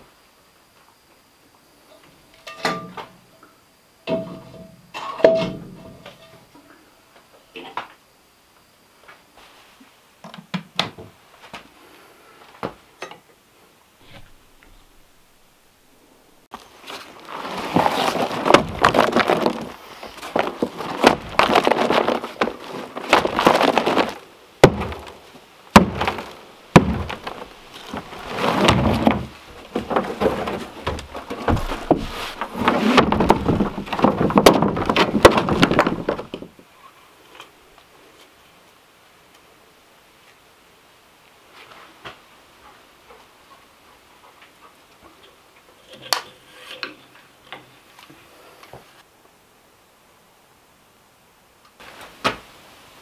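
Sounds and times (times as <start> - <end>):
sled scraping over dirt: 16.6 - 36.6
stones knocking and thudding: 17.4 - 36.5.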